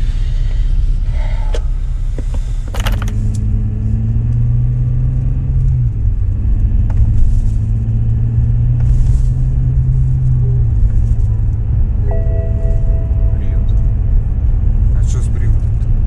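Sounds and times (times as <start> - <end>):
car engine and road drone: 0.0 - 16.0.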